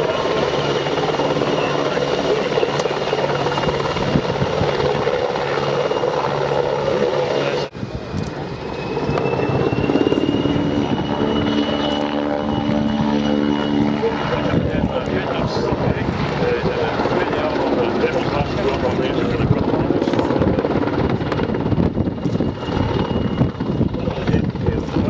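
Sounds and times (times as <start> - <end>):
helicopter rotor noise: 0.0 - 25.0
turbine whine: 0.0 - 25.0.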